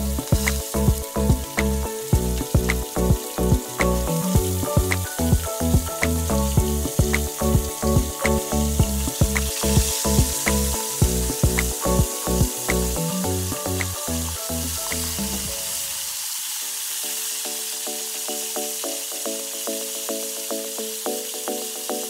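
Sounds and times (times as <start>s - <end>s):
music with steady beat: 0.0s - 15.7s
fish sizzling in hot oil: 0.0s - 22.0s.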